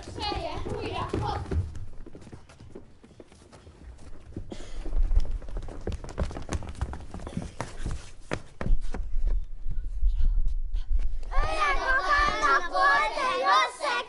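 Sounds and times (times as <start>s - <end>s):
children's feet running on stage: 0.0s - 9.5s.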